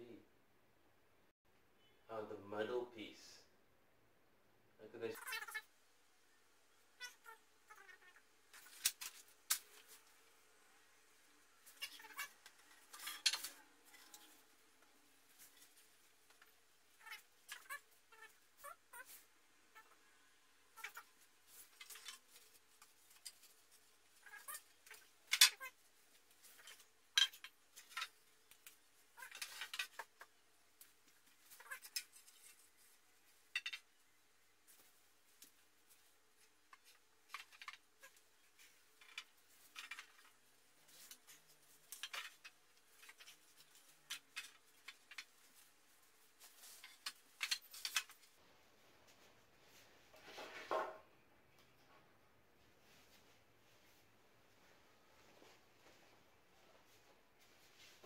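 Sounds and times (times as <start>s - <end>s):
wooden parts knocking and clacking: 24.2s - 25.7s, 26.4s - 30.4s, 33.5s - 34.0s, 36.7s - 40.4s, 41.8s - 45.3s, 46.7s - 48.3s.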